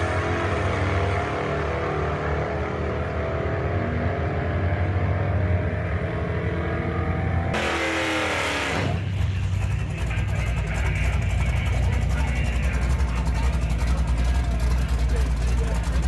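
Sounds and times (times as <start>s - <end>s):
racing car engine drone: 0.0s - 16.0s
near engine falling in pitch: 6.8s - 16.0s.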